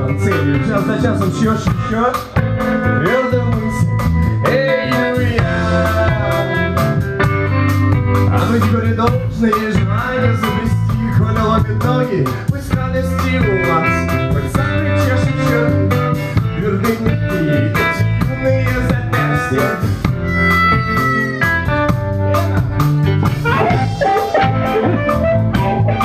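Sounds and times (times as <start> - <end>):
man singing: 0.0 - 7.3, 8.2 - 21.7
drum kit: 0.0 - 26.0
electric bass: 0.0 - 26.0
electric guitar: 0.0 - 26.0.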